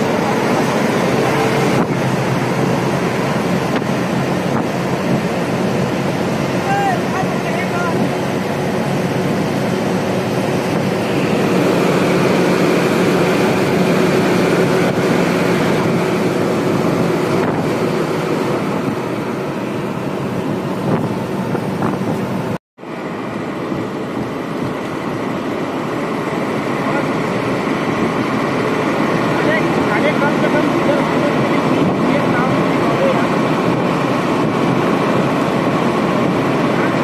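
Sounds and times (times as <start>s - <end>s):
road and wind noise: 0.0s - 37.0s
vehicle engine hum: 0.0s - 37.0s.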